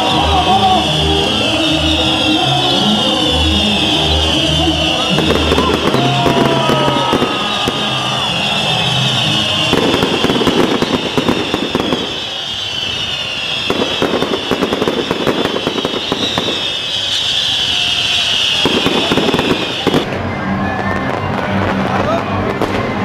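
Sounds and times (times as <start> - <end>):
fireworks crackling: 3.0 - 23.0
fireworks hissing: 4.0 - 20.2.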